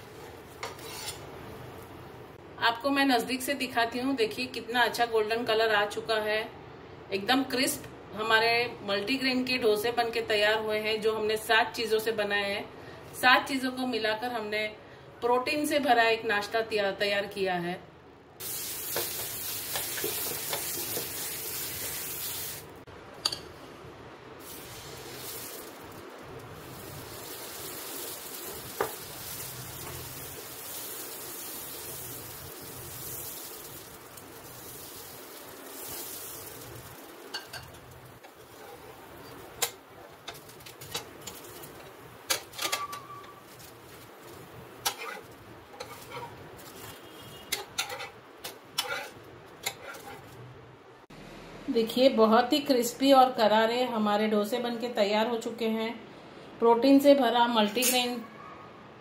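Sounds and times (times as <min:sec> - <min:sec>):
batter sizzling on a pan: 0:18.4 - 0:22.7, 0:24.4 - 0:42.5, 0:43.2 - 0:50.3
utensils clicking against pan: 0:47.5 - 0:50.2.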